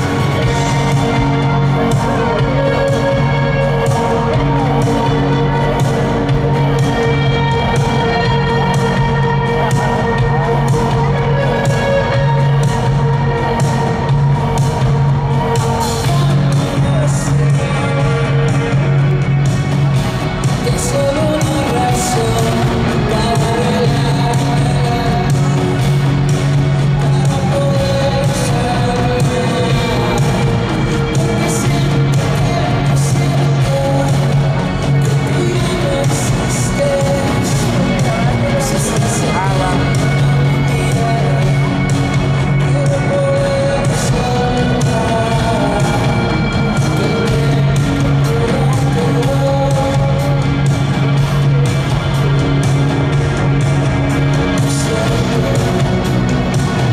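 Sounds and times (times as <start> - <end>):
man singing: 0.0 - 19.6, 20.3 - 52.6, 53.5 - 56.9
bass notes: 0.0 - 56.9
live rock band playing: 0.0 - 56.9.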